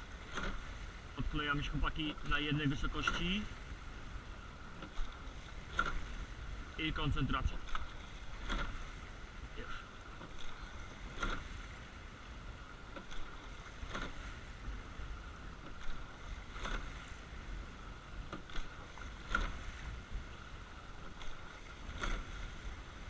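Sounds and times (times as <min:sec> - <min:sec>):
water rushing along hull: 0:00.0 - 0:23.0
oars knocking: 0:00.2 - 0:03.5, 0:04.8 - 0:06.2, 0:06.8 - 0:09.0, 0:10.1 - 0:11.6, 0:12.9 - 0:14.4.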